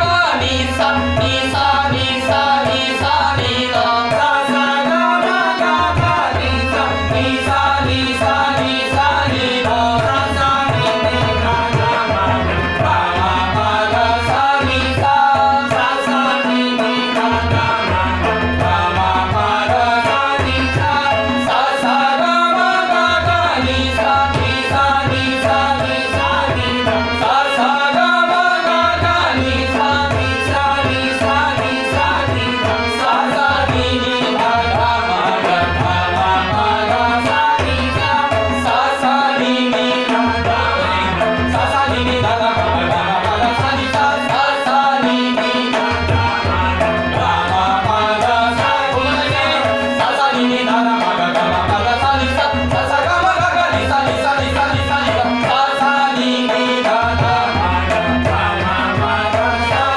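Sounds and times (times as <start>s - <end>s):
harmonium held notes: 0.0s - 59.9s
men singing: 0.0s - 59.9s.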